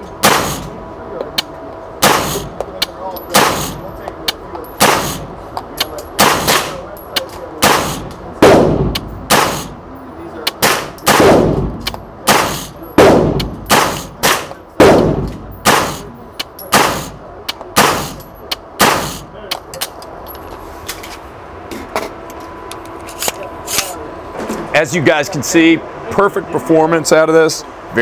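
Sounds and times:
gunshots echoing indoors: 0:00.2 - 0:00.7, 0:02.0 - 0:02.4, 0:06.2 - 0:06.8, 0:07.6 - 0:09.7, 0:10.6 - 0:16.1.

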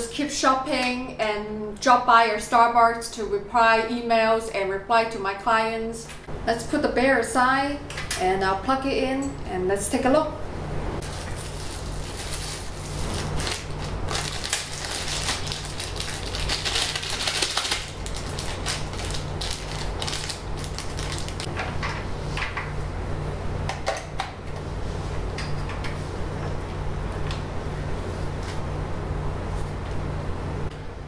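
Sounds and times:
steady low hum: 0:00.0 - 0:31.0
plastic wrapping crinkling: 0:11.0 - 0:21.5.

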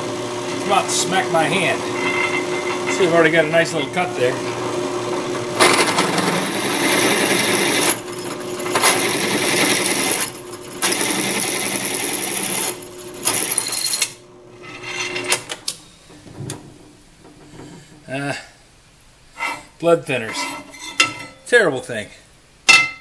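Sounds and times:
drill press boring metal: 0:00.5 - 0:04.6, 0:05.5 - 0:14.2.

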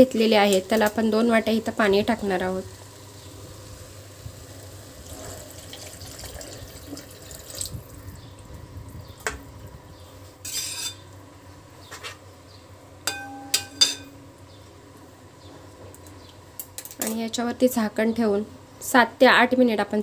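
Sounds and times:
water poured into a pan: 0:04.9 - 0:07.9
spatula scraping a metal pan: 0:10.4 - 0:11.0
ringing metal clinks: 0:13.1 - 0:14.1.

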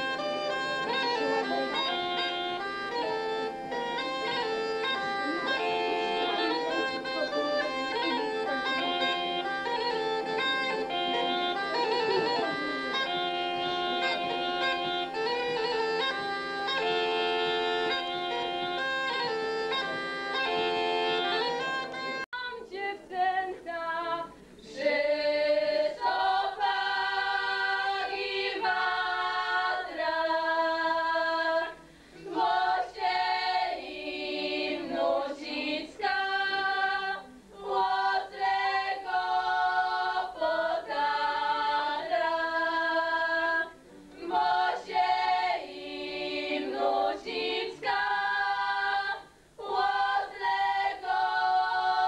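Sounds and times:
bagpipes playing a droned tune: 0:00.0 - 0:22.3
women singing a cappella: 0:20.6 - 0:52.0.

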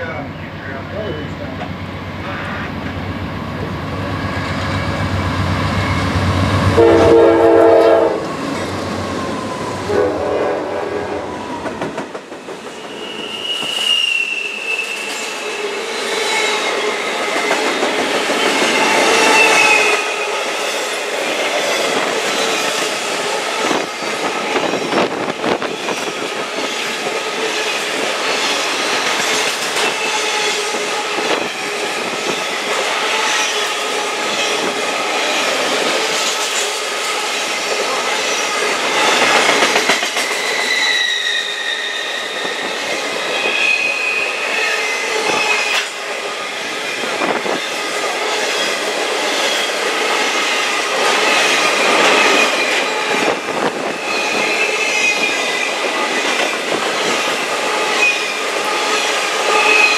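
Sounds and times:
freight train wheels rumbling on rail: 0:00.0 - 0:59.9
wheel squeal: 0:12.7 - 0:15.5, 0:40.2 - 0:45.8.

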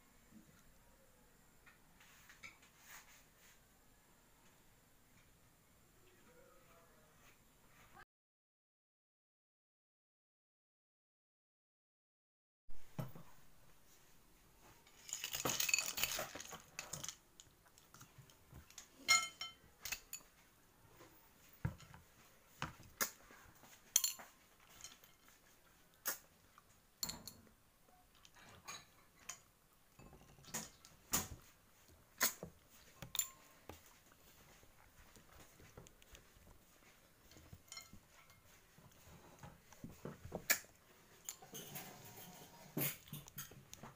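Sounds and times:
metal spoons clinking on ceramic: 0:18.7 - 0:20.3, 0:24.0 - 0:25.4, 0:27.0 - 0:27.5, 0:33.0 - 0:33.5, 0:37.6 - 0:38.5, 0:41.2 - 0:43.6.

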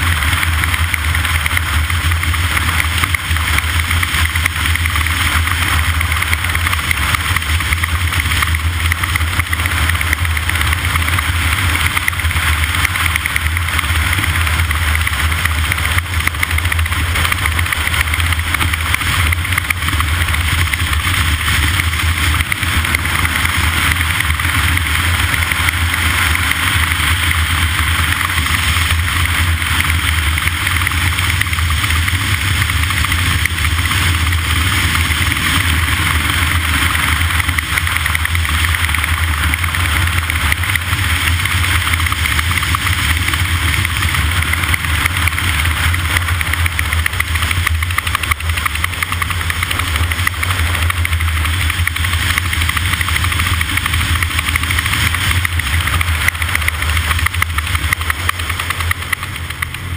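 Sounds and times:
loud motor drone: 0:00.0 - 0:59.9.

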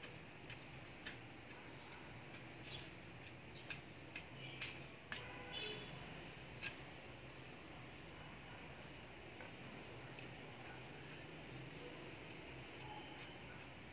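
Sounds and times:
trowel scraping soil: 0:10.2 - 0:13.9.

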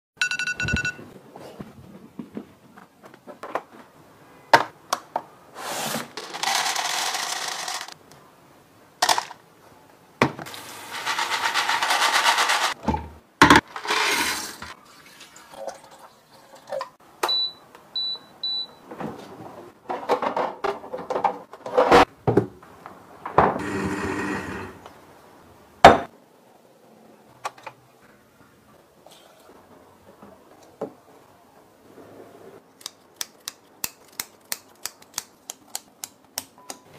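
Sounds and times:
electronic beep: 0:00.2 - 0:01.0
quick high beeps: 0:00.2 - 0:01.0
beans poured into glass jug: 0:13.8 - 0:15.8.

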